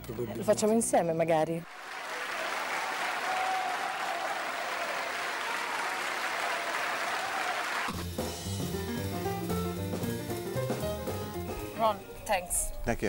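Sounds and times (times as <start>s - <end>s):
audience applauding: 1.7s - 8.0s
jazz combo playing: 7.9s - 13.0s.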